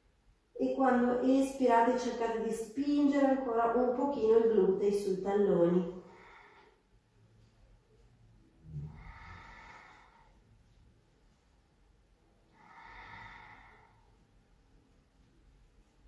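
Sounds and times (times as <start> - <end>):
slow deep breathing: 5.9 - 7.8, 8.5 - 11.5, 12.4 - 15.1.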